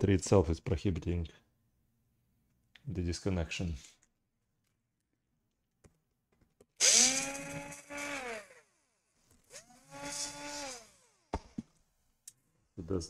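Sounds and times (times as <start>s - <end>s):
electric screwdriver whining: 6.8s - 8.6s, 9.5s - 11.3s.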